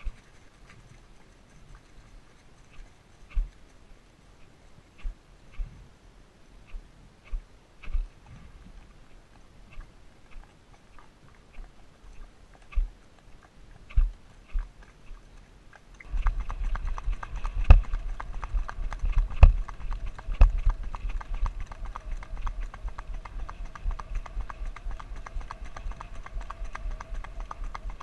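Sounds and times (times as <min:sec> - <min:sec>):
rapid hoofbeat-like clicks: 0:00.0 - 0:03.8, 0:05.0 - 0:05.8, 0:06.7 - 0:08.2, 0:09.1 - 0:28.0
dense low rumble: 0:16.0 - 0:28.0
loose camera clicking and knocking: 0:16.0 - 0:28.0.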